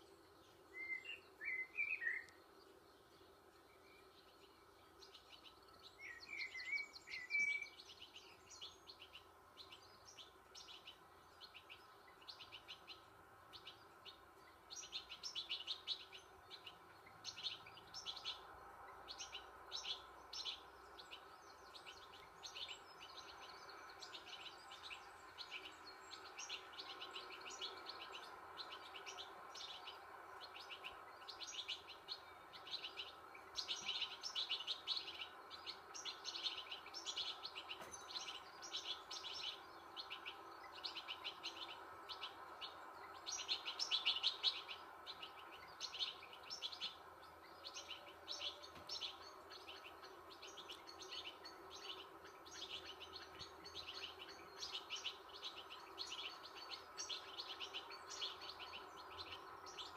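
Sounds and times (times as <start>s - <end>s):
small birds chirping: 0.0s - 59.9s
short whistled bird call: 0.8s - 2.3s.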